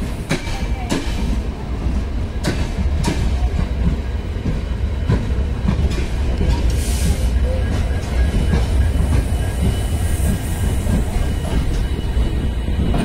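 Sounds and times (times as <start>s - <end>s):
steel train wheels rumbling on rail: 0.0s - 13.0s.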